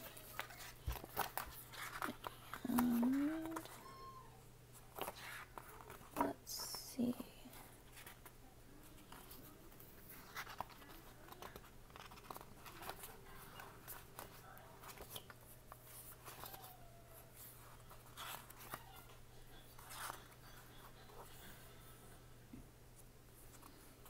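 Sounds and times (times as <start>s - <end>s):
paper sheets flipping: 0.0s - 3.8s, 4.9s - 6.3s, 9.0s - 16.7s, 17.3s - 20.6s
low steady hum: 0.0s - 24.0s.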